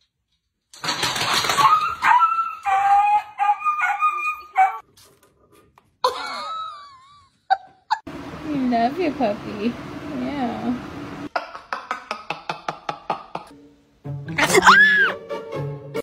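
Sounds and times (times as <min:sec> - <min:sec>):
dog yowling and whining: 0:01.5 - 0:04.8.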